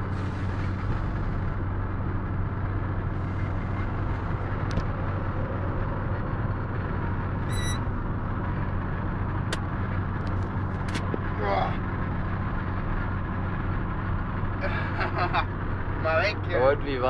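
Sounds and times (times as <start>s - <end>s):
van engine and road drone: 0.0s - 17.0s
high squeak: 7.4s - 7.9s.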